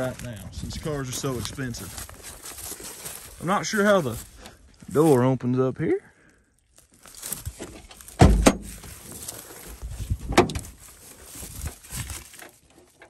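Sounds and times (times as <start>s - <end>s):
scraping and rustling: 7.0s - 13.0s.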